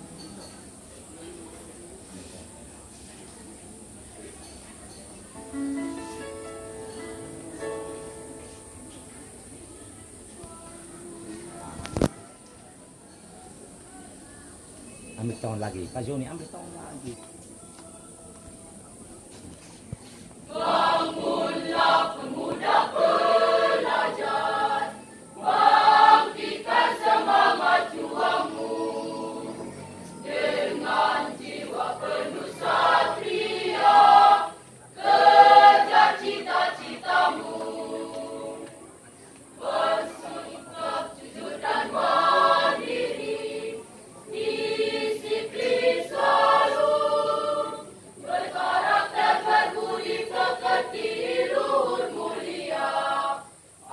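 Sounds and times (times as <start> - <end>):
choir singing: 20.5 - 53.9.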